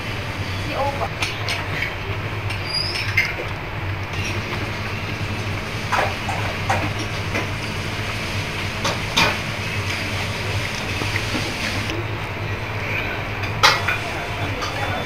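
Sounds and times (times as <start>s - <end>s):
dining room hum and hiss: 0.0s - 15.0s.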